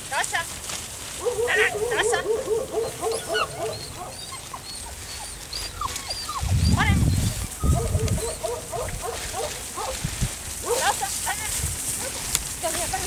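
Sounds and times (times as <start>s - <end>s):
dog whining and yipping: 1.2s - 10.0s.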